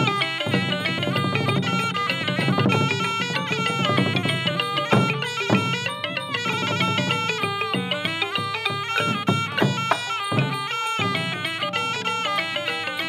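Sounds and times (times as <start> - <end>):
heavy drum strokes: 0.0 - 12.0
drums: 0.0 - 13.0
reed oboe melody: 0.0 - 13.0.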